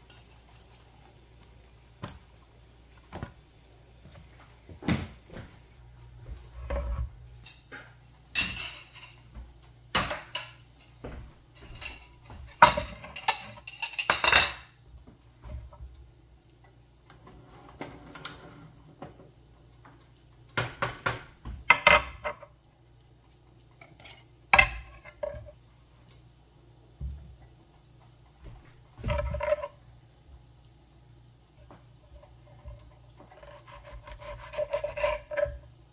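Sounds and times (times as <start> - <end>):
dishes and cutlery clattering: 6.6 - 9.3, 10.0 - 14.8, 21.6 - 22.6, 23.8 - 25.6, 29.0 - 29.8.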